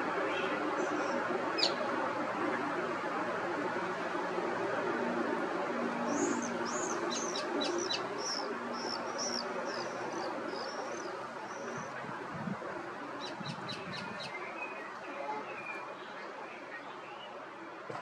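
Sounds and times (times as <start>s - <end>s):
steady background hiss: 0.0s - 17.8s
birds chirping: 0.3s - 1.8s, 6.1s - 12.0s, 13.2s - 15.8s.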